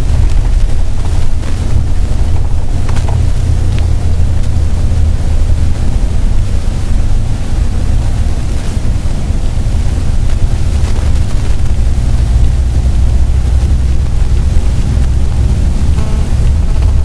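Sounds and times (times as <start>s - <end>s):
vehicle driving at highway speed: 0.0s - 17.0s
wind noise on microphone: 0.0s - 17.0s.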